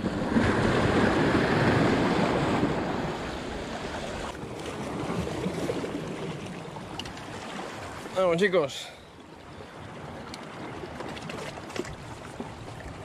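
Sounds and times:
wind on microphone: 0.0s - 6.4s
waves breaking against rocks: 0.0s - 13.0s.

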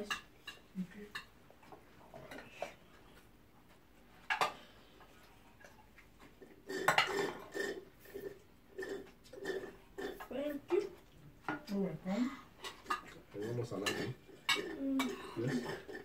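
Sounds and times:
cutlery clinking on plates: 6.7s - 7.8s, 12.6s - 16.0s
spoon scraping dish: 12.6s - 16.0s.

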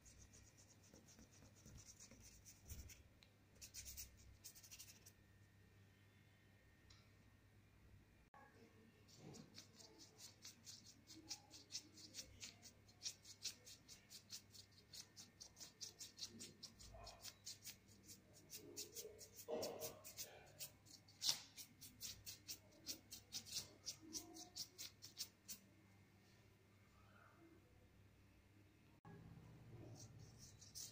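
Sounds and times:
paintbrush strokes: 0.0s - 5.2s, 9.1s - 25.6s, 29.7s - 30.9s.

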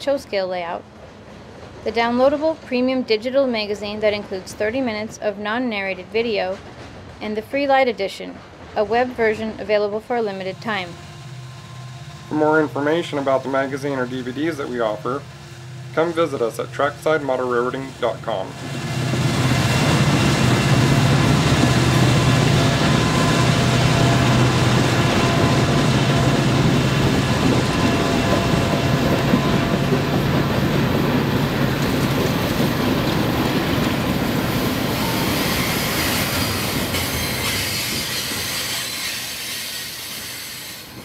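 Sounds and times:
diesel locomotive engine drone: 0.0s - 41.0s.

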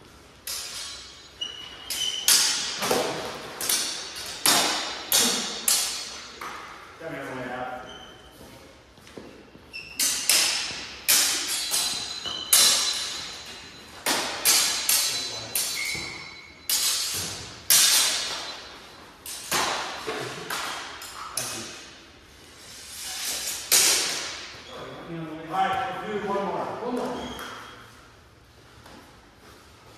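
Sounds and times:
swords clashing: 0.4s - 6.7s, 9.9s - 22.0s, 23.1s - 24.6s.

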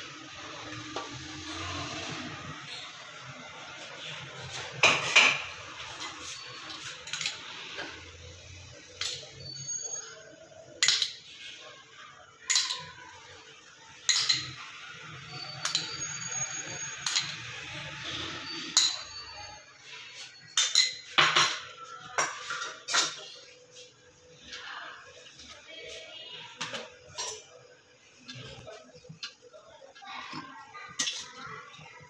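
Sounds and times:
metal spoon tapping pot: 10.8s - 11.3s, 12.5s - 12.9s, 14.0s - 14.6s, 15.6s - 16.1s, 17.0s - 17.4s, 18.7s - 19.2s, 20.5s - 23.2s.

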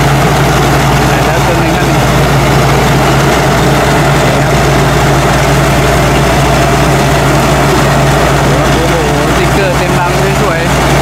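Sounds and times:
combine harvester running: 0.0s - 11.0s.

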